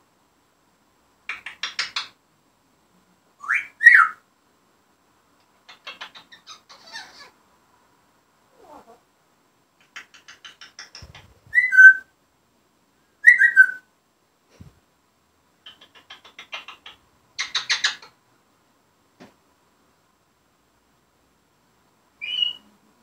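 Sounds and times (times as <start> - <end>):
parrot clicking chatter: 1.3 - 2.1, 5.7 - 7.3, 9.8 - 11.4, 15.6 - 18.1
parrot falling whistles: 11.5 - 12.0.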